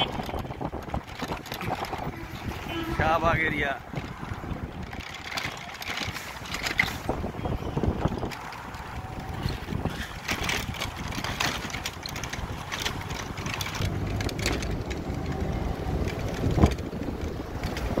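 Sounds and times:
moving vehicle rumble: 0.0 - 18.0
wind buffeting microphone: 0.0 - 18.0.

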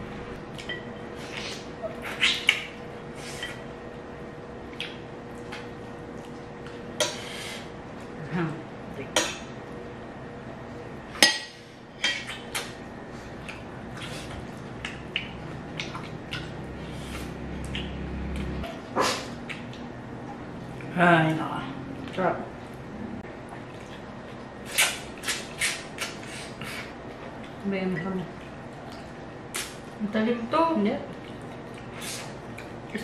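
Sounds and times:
people chewing and sucking: 0.5 - 3.7, 12.2 - 19.9, 23.4 - 27.6, 28.3 - 29.9, 31.1 - 32.9.

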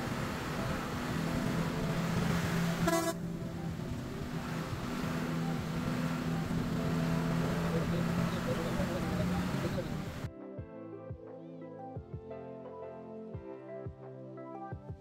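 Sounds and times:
coach driving on wet road: 0.0 - 10.3
vehicle horn toot: 2.8 - 3.3.

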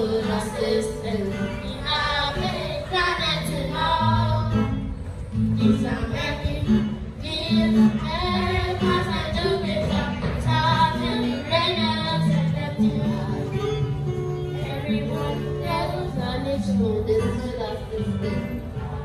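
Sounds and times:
children singing into microphone: 0.0 - 14.0, 14.6 - 19.0
musical accompaniment: 0.0 - 19.0.

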